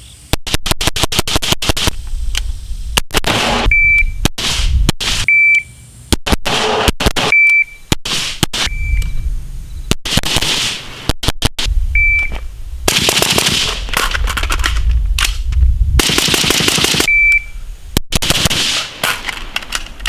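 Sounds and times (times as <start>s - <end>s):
shot timer beep: 3.6s - 4.2s, 5.3s - 5.7s, 7.2s - 7.8s, 8.6s - 9.2s, 12.0s - 12.4s, 17.1s - 17.6s
rifle shots with echoes: 10.0s - 10.9s, 12.9s - 14.0s, 16.0s - 17.1s, 18.1s - 19.3s.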